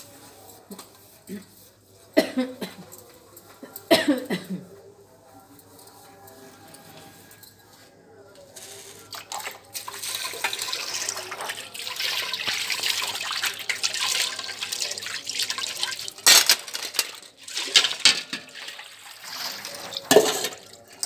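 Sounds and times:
metal utensils clattering: 9.1 - 21.0
water splashing over dishes: 9.1 - 21.0.

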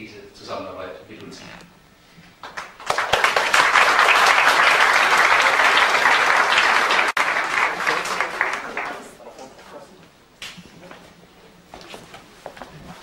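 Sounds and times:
audience applauding: 2.4 - 9.2.

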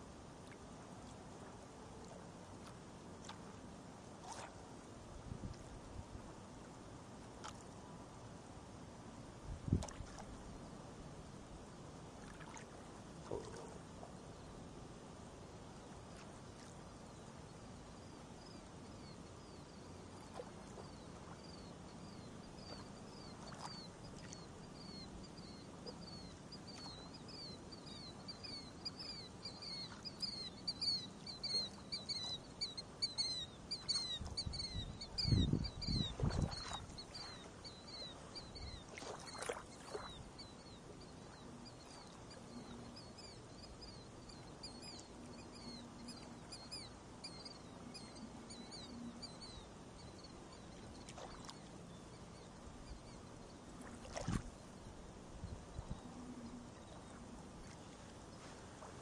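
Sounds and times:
birds chirping: 18.0 - 53.6.

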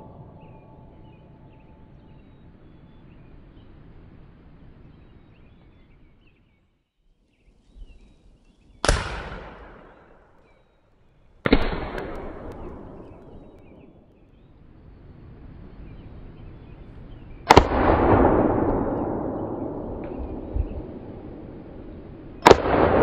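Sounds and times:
faint bird chirps: 0.0 - 8.9
outdoor background: 0.0 - 23.0
rifle shot echoing: 8.8 - 10.6, 11.4 - 14.2, 17.4 - 23.0.

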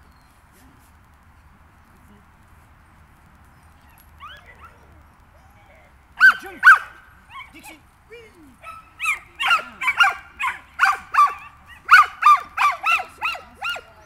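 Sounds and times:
high-pitched dog barking: 6.2 - 7.6, 8.6 - 13.9.

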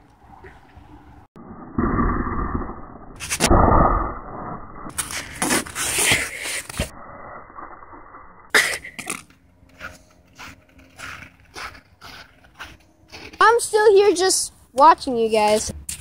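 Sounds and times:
person coughing and spitting: 8.5 - 9.2.

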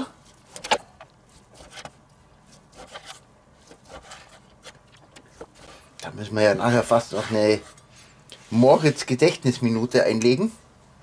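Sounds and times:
knife scraping strokes: 2.5 - 4.8, 6.9 - 8.9.

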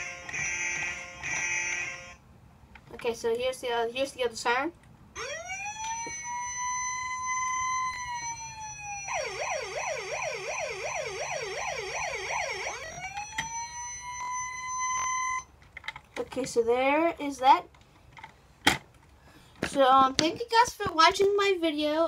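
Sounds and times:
toy electronic siren: 0.0 - 2.2, 5.2 - 15.5.

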